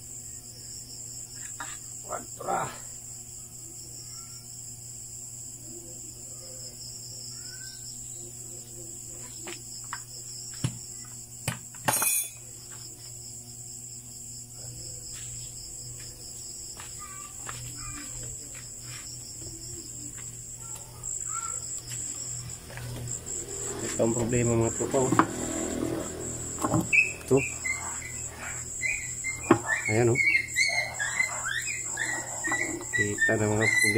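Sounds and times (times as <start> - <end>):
crickets chirring: 0.0 - 33.9
metal tools clinking: 11.9 - 12.4.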